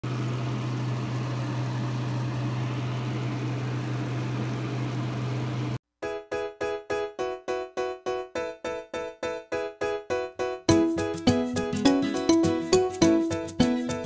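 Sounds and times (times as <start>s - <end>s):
piano music: 6.0s - 14.0s.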